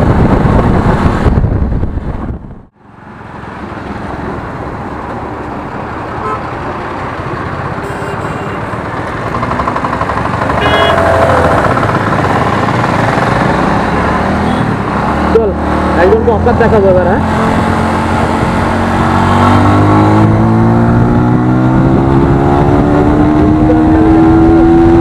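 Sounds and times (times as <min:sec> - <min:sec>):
wind and road noise: 0:00.0 - 0:25.0
vehicle horn honking: 0:06.2 - 0:06.5, 0:07.8 - 0:08.6, 0:10.6 - 0:11.7
motorcycle engine running: 0:09.1 - 0:13.7.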